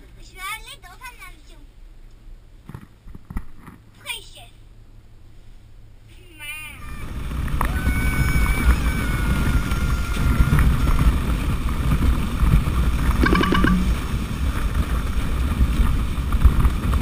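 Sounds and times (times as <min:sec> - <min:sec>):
sled runners rumbling on snow: 0:07.0 - 0:13.2, 0:14.1 - 0:17.0
wind buffeting microphone: 0:07.0 - 0:17.0.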